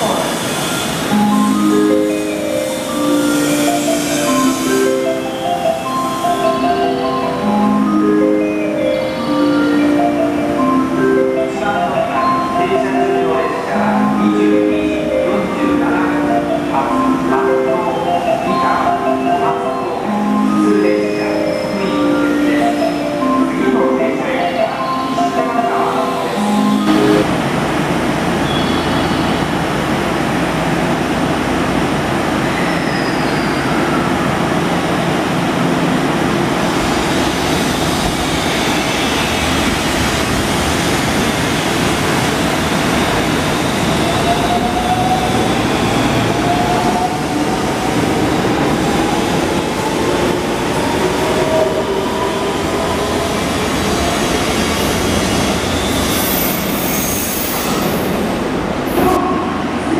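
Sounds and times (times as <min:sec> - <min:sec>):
train wheels rumbling on rail: 0:27.2 - 0:59.9.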